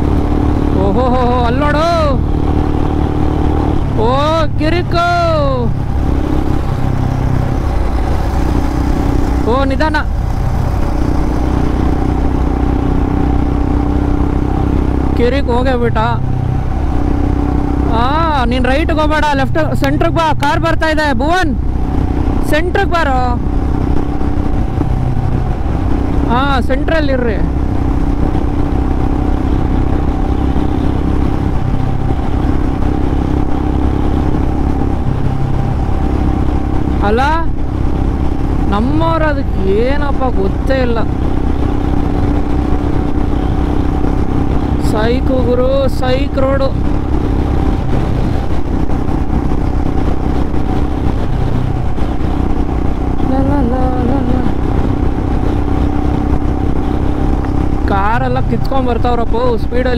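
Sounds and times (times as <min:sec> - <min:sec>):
motorcycle engine cruising: 0:00.0 - 0:59.9
road rumble: 0:00.0 - 0:59.9
wind noise: 0:16.0 - 0:59.9
wind on microphone: 0:41.0 - 0:59.9.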